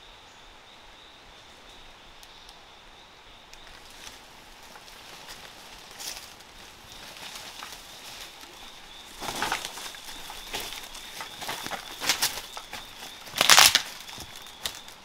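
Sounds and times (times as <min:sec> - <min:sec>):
footsteps crunching dry leaves: 0:03.7 - 0:15.0.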